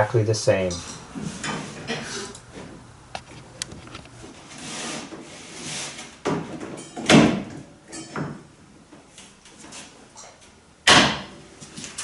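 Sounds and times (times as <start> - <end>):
wooden plank scraping: 4.2 - 6.2.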